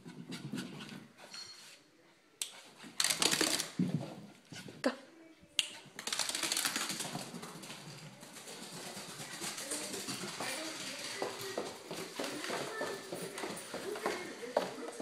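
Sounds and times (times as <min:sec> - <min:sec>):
dog paws pattering on floor: 0:02.5 - 0:04.9, 0:05.6 - 0:15.0.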